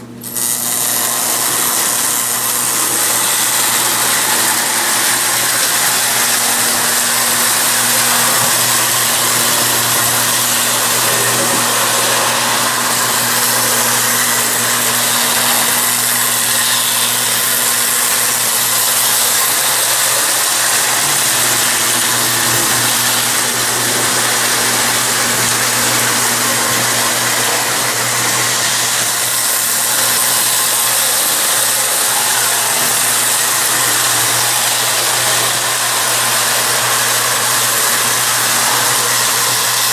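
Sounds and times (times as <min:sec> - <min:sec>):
toy train whirring and rattling: 0:00.0 - 0:39.9.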